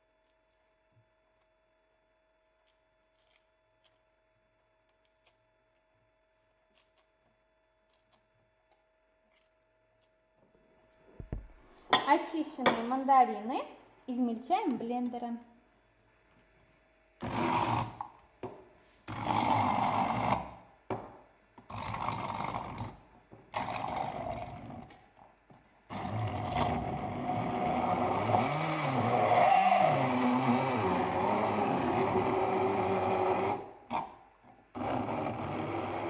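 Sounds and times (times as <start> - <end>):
immersion blender chopping fruit: 17.2 - 21.0, 25.9 - 34.1, 34.8 - 36.0.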